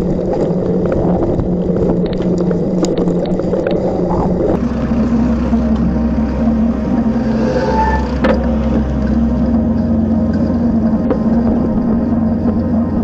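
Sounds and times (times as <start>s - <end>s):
road traffic hum: 4.6s - 13.0s.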